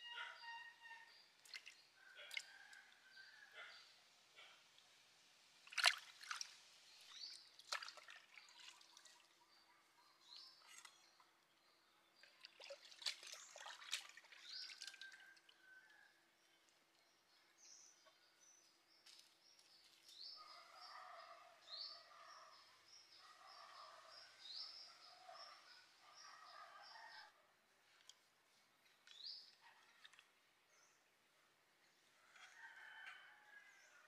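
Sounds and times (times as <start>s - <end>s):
water splashing in a pot: 5.6s - 9.2s, 12.4s - 15.2s.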